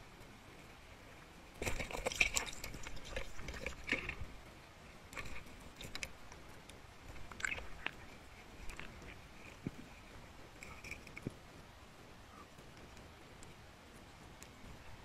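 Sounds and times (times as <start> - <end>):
underwater clicks and crackles: 1.2 - 4.5, 5.1 - 11.7.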